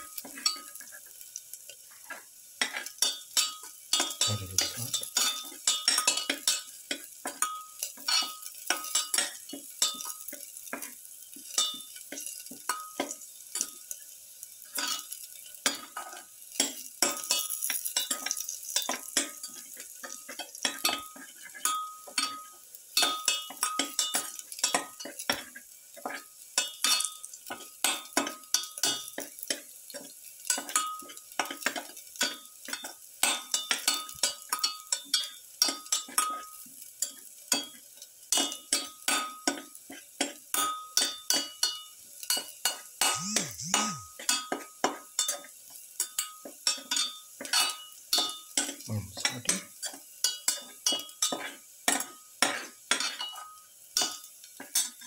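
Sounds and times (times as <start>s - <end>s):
garlic sizzling in oil: 0.0s - 43.2s, 44.2s - 55.0s.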